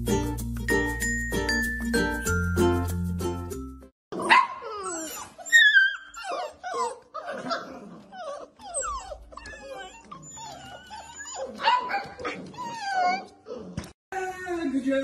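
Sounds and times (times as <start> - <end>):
puppies yipping and howling: 4.3 - 13.7.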